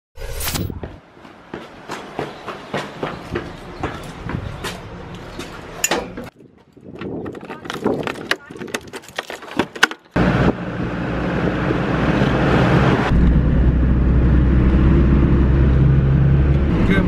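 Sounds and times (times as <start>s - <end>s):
vehicle engine and road noise: 0.2s - 17.0s
keys jangling at door lock: 6.7s - 10.0s.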